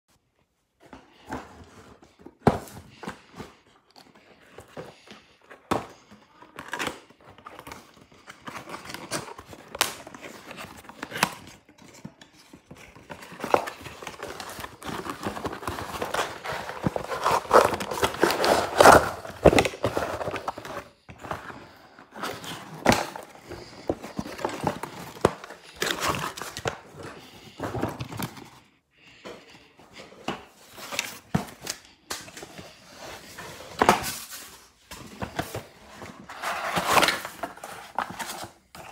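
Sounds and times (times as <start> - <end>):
packaging rustling and tearing: 6.6 - 28.5.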